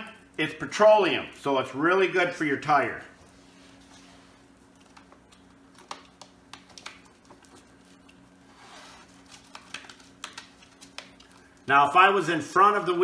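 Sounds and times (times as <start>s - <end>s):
steady low hum: 0.0s - 13.0s
gloved hands squishing and rubbing: 3.0s - 13.0s
card clicks and crinkles: 4.7s - 8.2s, 9.0s - 11.6s.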